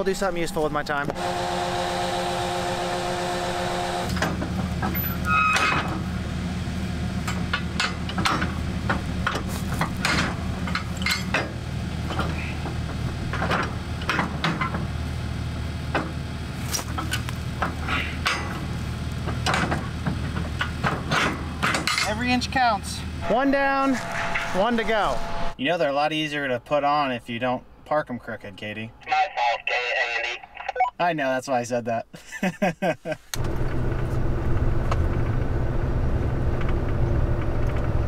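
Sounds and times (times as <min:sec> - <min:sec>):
steady engine hum: 0:00.0 - 0:30.2, 0:33.4 - 0:38.0
metal clanks of trailer hitching: 0:04.1 - 0:06.1, 0:07.2 - 0:15.0, 0:15.9 - 0:22.4
steady multi-note tone: 0:23.0 - 0:25.6.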